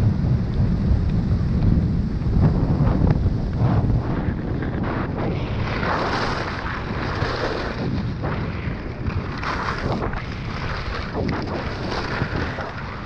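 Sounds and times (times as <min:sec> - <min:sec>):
wind rumbling on microphone: 0:00.0 - 0:13.0
skis scraping on packed snow: 0:03.6 - 0:13.0.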